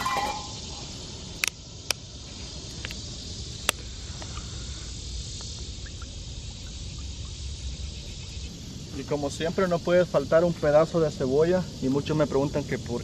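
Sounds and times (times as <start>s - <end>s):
frying pan set on wire grill: 0.0s - 0.8s
insects buzzing: 0.0s - 13.0s.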